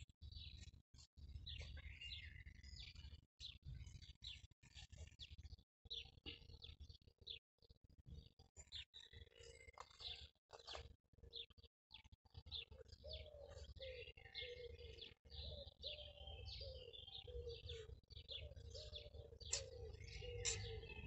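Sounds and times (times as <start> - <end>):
small birds chirping and singing: 0.0 - 21.0
low bird call: 13.1 - 21.0.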